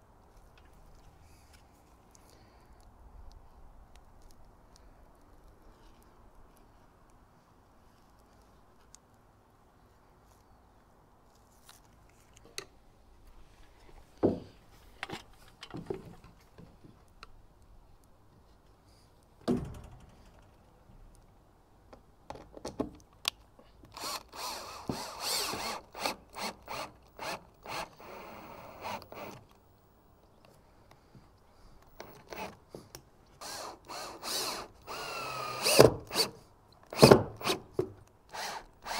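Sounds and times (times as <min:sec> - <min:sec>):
cordless drill driving screws: 0:24.0 - 0:29.5, 0:32.0 - 0:32.6, 0:33.4 - 0:37.6, 0:38.3 - 0:38.9.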